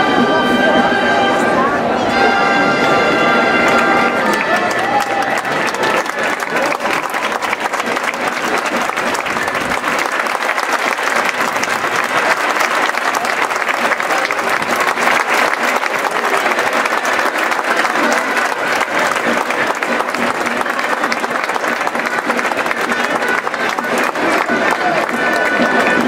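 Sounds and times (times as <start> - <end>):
crowd applauding: 3.0 - 26.0.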